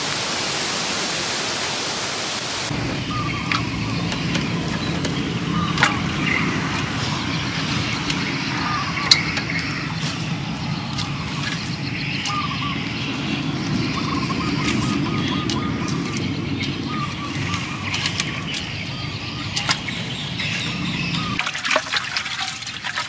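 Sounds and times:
low rumble: 0:02.7 - 0:21.4.

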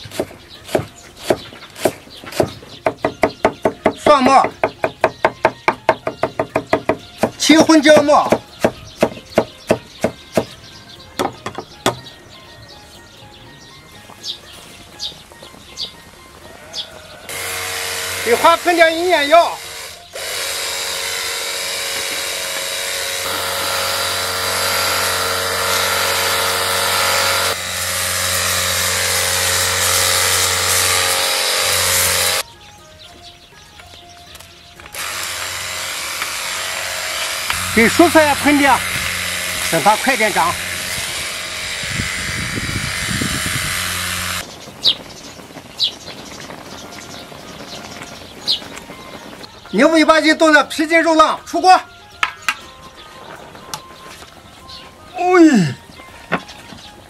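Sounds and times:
bird chirps: 0:00.0 - 0:17.3, 0:44.4 - 0:57.0
electric pump motor humming: 0:17.3 - 0:32.4, 0:34.9 - 0:44.4.

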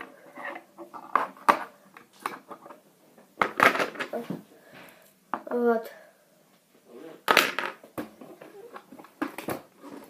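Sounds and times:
plastic bricks clicking and clattering: 0:03.4 - 0:04.2.

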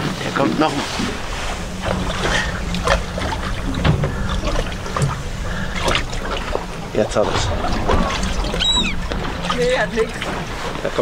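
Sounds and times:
steady low rumble: 0:00.0 - 0:11.0
water lapping against boat hull: 0:00.0 - 0:11.0.

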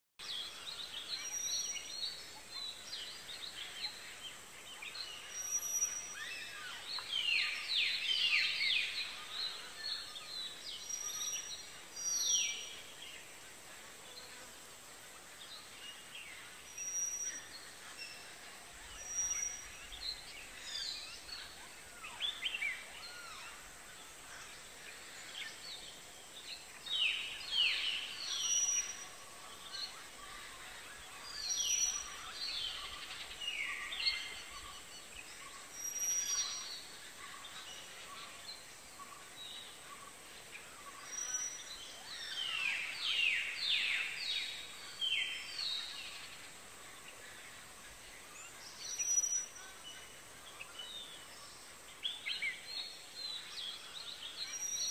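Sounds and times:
songbirds chirping and whistling: 0:00.2 - 0:14.6, 0:15.2 - 0:54.9.

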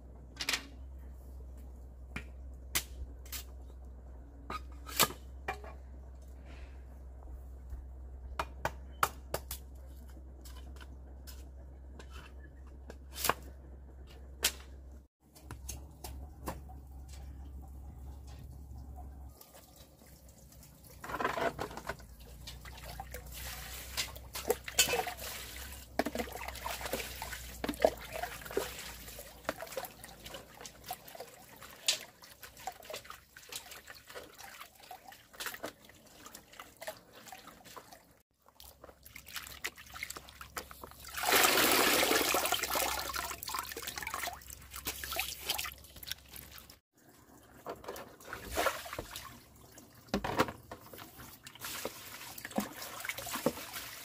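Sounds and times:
water splashing and trickling: 0:15.2 - 0:54.0.

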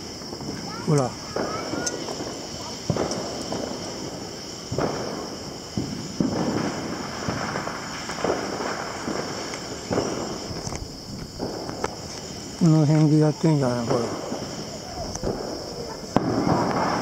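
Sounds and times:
fireworks bangs with rolling echo: 0:00.0 - 0:17.0.

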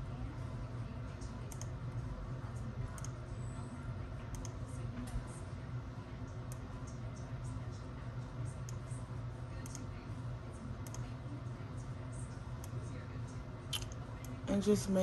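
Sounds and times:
computer mouse clicking: 0:01.5 - 0:01.7, 0:03.0 - 0:03.2, 0:04.3 - 0:04.6, 0:10.8 - 0:11.1.

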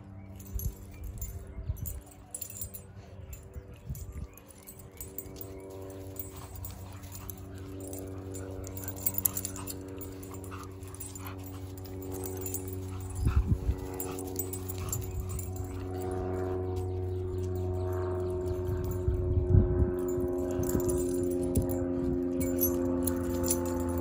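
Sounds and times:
dogs growling while playing: 0:04.5 - 0:17.5.

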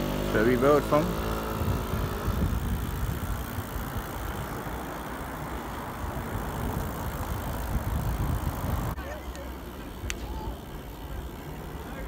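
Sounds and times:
wind buffeting microphone: 0:01.1 - 0:09.0.

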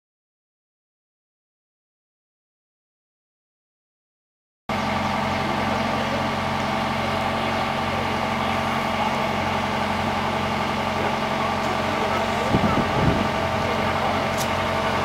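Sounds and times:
diesel engine running: 0:04.7 - 0:15.0.

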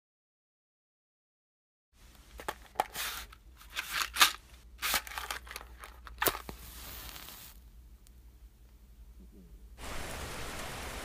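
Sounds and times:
match scraping on matchbox: 0:06.2 - 0:07.6
match flame hiss: 0:06.4 - 0:07.6.

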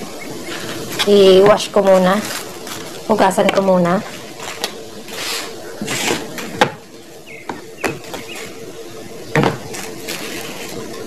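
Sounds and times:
paper and straw rustling: 0:00.4 - 0:06.6, 0:07.9 - 0:08.8, 0:09.6 - 0:11.0
fruit knocking on plastic: 0:09.3 - 0:09.8.

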